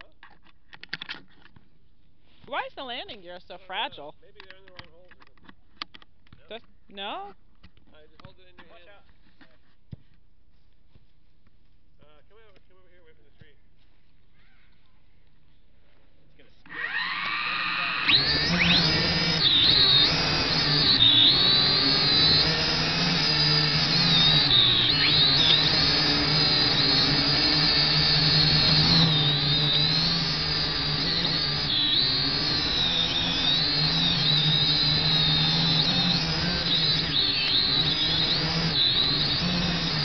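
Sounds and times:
drone motors whining: 16.7s - 40.0s.

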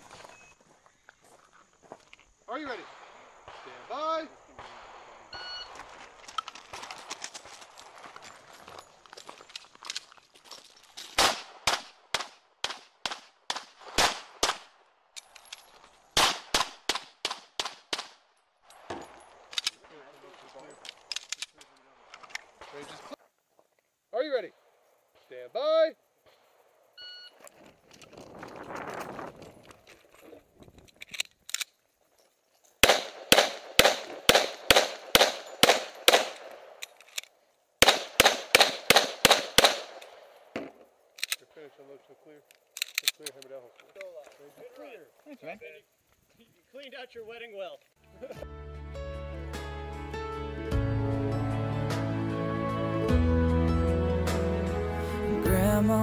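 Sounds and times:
pistol shots with echo: 11.2s - 14.8s, 16.2s - 18.2s, 32.8s - 36.8s, 37.8s - 40.2s.

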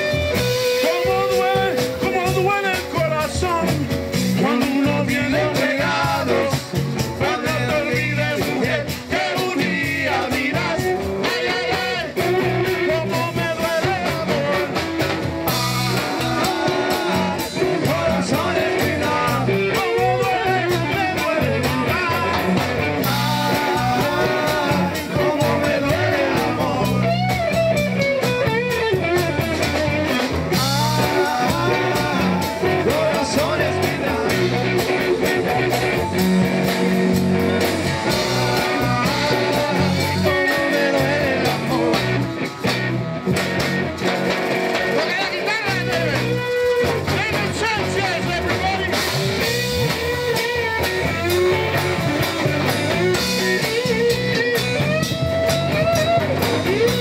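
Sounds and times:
man singing into a microphone: 0.0s - 15.0s, 15.8s - 27.4s, 30.4s - 35.6s, 38.0s - 42.4s, 44.9s - 51.8s
rock band playing: 0.0s - 57.0s.

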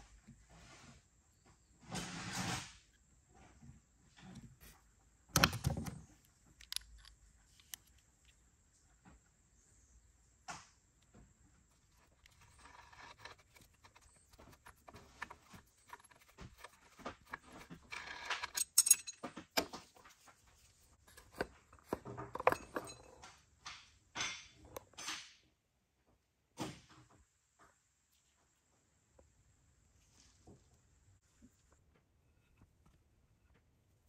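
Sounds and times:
metal tools clinking and scraping: 11.7s - 20.3s, 21.1s - 23.4s.

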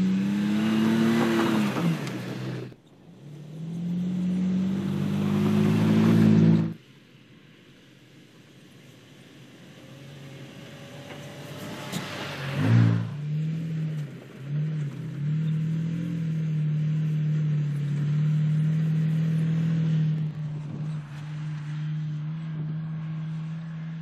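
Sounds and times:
truck engine driving over grass: 0.0s - 6.8s, 11.0s - 24.0s.

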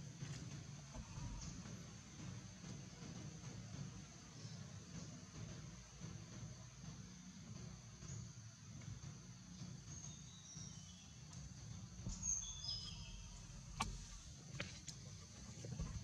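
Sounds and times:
insects droning: 0.0s - 16.0s
bird chirps: 9.9s - 14.3s.

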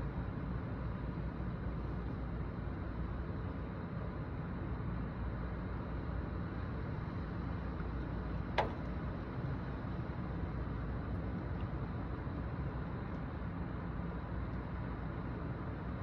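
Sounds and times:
wind: 0.0s - 16.0s.

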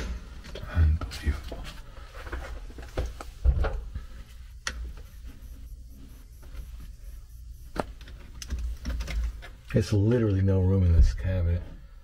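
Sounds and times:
sharp clicks and knocks: 7.7s - 9.8s.

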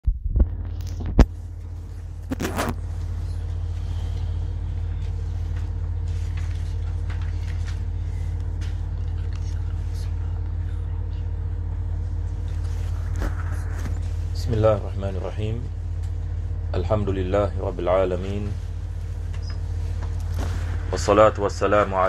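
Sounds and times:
steady low hum: 0.1s - 22.0s.

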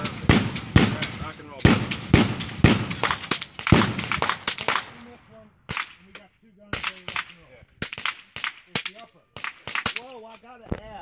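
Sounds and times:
suppressed pistol shots: 0.0s - 5.0s.

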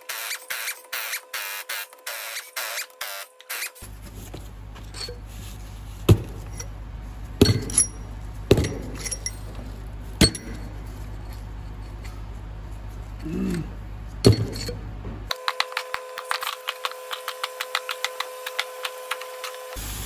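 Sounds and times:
metal parts clinking: 3.6s - 5.3s, 7.4s - 12.3s, 14.2s - 14.9s
steady low hum: 3.8s - 15.4s.

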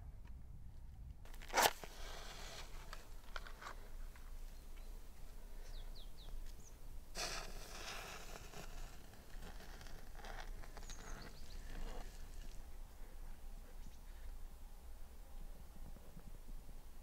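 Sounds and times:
rustling: 1.3s - 14.4s
bird chirping: 5.6s - 6.8s, 10.7s - 12.2s.

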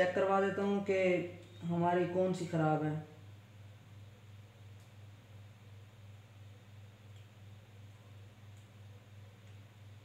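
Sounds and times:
steady low hum: 0.0s - 10.0s
faint ticks of wires twisted: 4.7s - 5.0s, 7.0s - 7.4s, 8.4s - 9.8s.

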